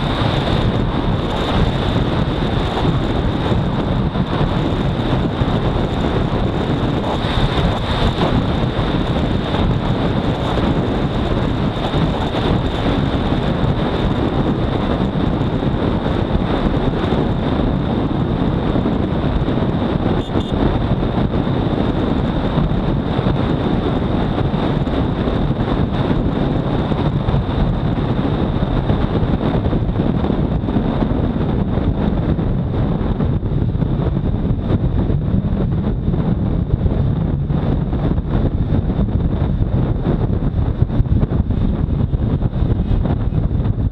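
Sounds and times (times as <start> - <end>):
high whine: 0.0 - 21.4
motorcycle engine running: 0.0 - 43.9
wind rushing over microphone: 0.0 - 43.9.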